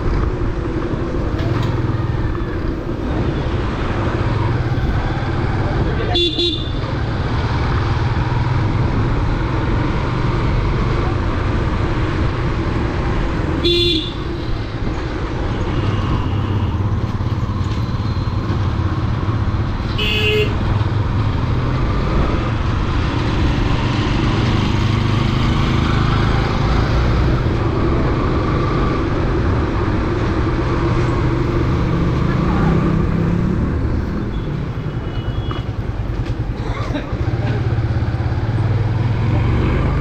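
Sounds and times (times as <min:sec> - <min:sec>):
motorcycle engine and road noise: 0:00.0 - 0:40.0
vehicle horn beeping: 0:20.0 - 0:20.6, 0:34.3 - 0:35.7.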